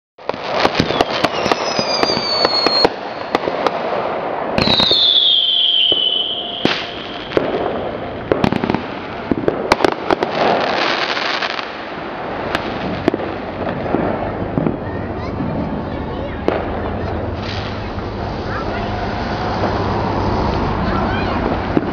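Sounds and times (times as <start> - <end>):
fireworks bangs and crackles: 0.2 - 21.9
firework whistles falling: 0.5 - 3.4, 4.6 - 9.1.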